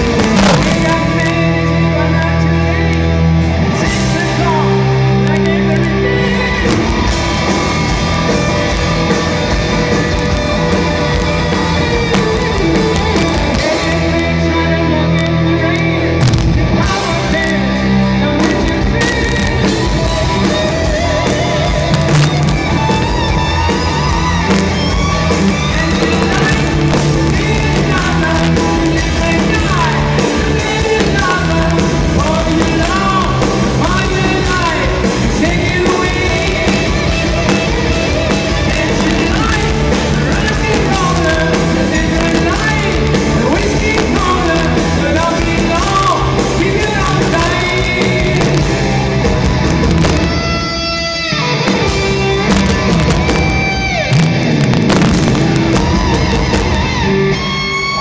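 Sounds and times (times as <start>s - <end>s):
lead vocals: 0.0s - 50.7s
bass guitar: 0.0s - 58.0s
distorted electric guitars: 0.0s - 58.0s
drums: 0.0s - 58.0s.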